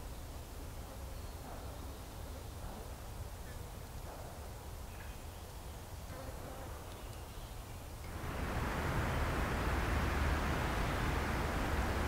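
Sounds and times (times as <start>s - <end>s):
steady low rumble: 8.1s - 12.0s.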